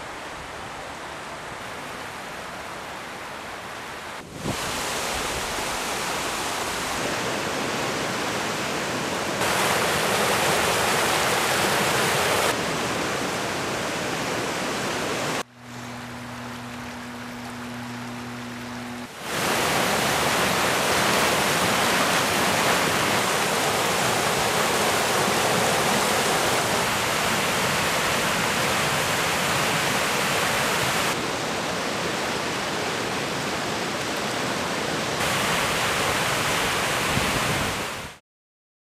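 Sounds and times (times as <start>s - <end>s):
creek rushing through rapids: 0.0s - 16.4s, 18.4s - 38.2s
steady low hum: 15.5s - 19.2s.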